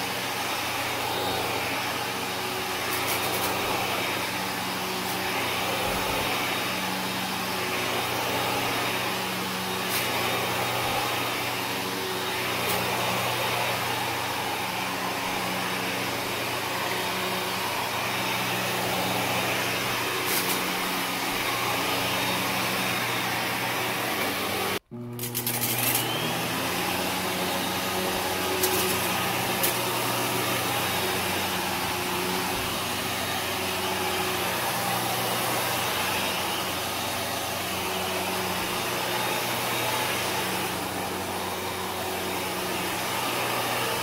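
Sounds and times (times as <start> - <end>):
vacuum cleaner running: 0.0 - 44.0
debris clicking in vacuum: 25.2 - 26.1.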